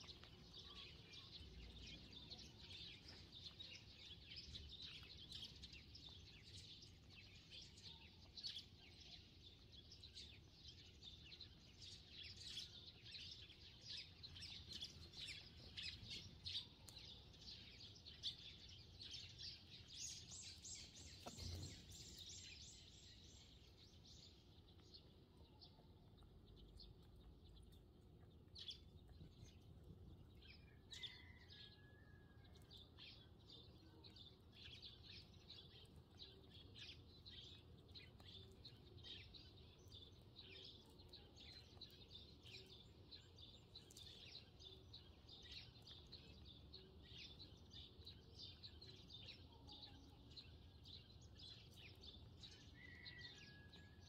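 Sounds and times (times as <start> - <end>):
sparrows chirping: 0.0 - 54.0.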